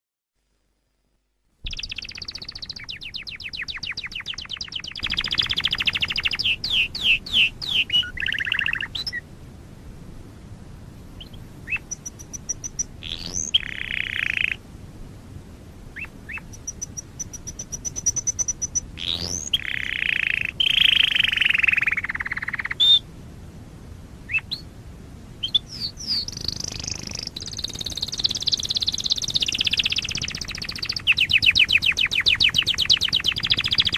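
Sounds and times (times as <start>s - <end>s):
canary singing trills: 1.7s - 9.2s, 11.2s - 14.6s, 15.9s - 23.0s, 24.3s - 24.7s, 25.4s - 33.9s.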